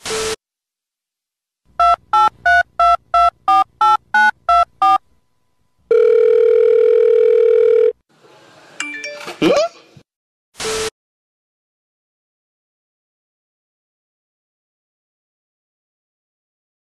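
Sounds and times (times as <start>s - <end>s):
keypad dialing beeps: 1.8s - 5.0s
telephone dial tone: 5.9s - 8.0s.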